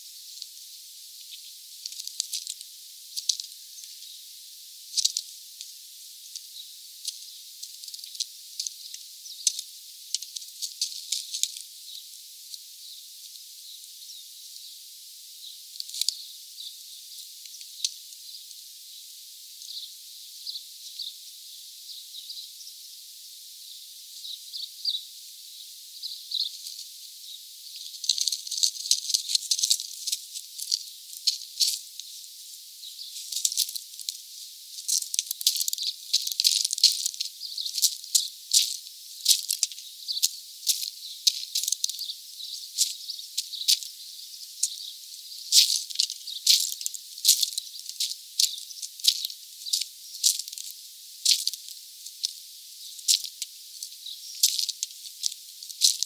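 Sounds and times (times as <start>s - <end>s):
faint high bird chirps: 11.8s - 29.3s, 37.3s - 38.4s, 39.7s - 45.5s.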